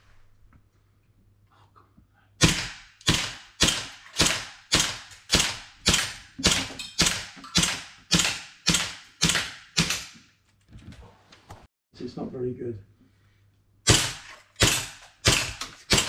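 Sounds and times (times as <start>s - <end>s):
air pistol shots echoing: 2.4s - 10.2s, 13.8s - 16.0s.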